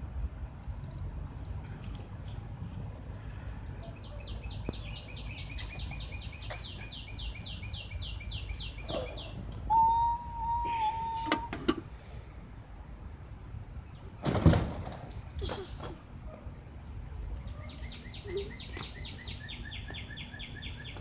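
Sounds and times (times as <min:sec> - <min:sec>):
steady whistling tone: 0:09.7 - 0:11.5.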